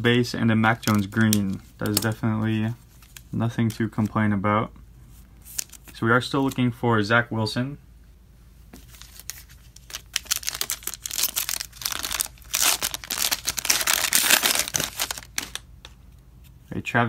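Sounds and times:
foil wrapper tearing and crinkling: 9.0s - 15.6s.

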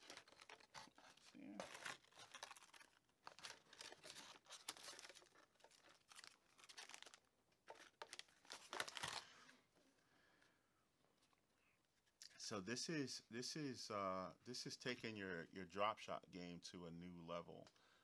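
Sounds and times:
plastic packaging crinkling: 0.0s - 9.3s.

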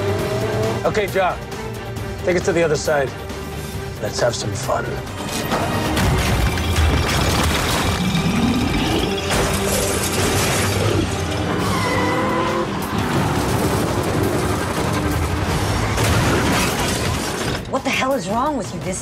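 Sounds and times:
film score music: 0.0s - 19.0s
metal and glass crunching: 5.3s - 11.4s, 13.1s - 17.6s.

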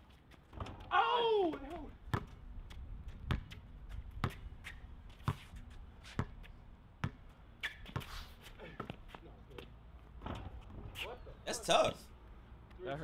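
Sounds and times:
basketball bouncing on court: 1.5s - 2.4s, 3.1s - 3.6s, 7.0s - 8.1s.

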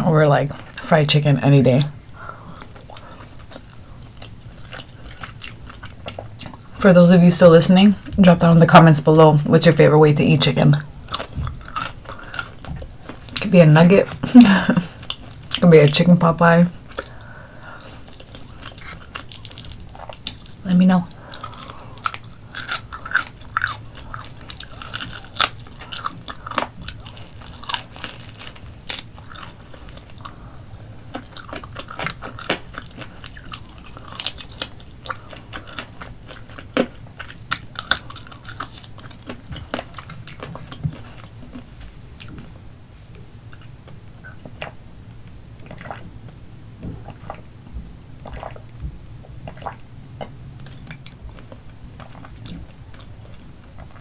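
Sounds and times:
biting and chewing: 10.8s - 13.5s, 16.8s - 42.5s.

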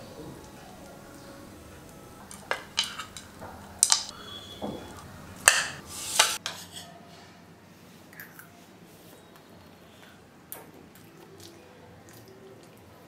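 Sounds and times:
spoon clinking against dishes: 0.0s - 7.0s.

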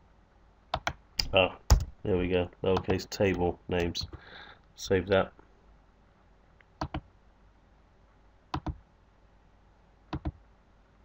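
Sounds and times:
computer mouse clicking: 0.7s - 1.9s, 6.8s - 7.1s, 8.5s - 8.8s, 10.1s - 10.4s.

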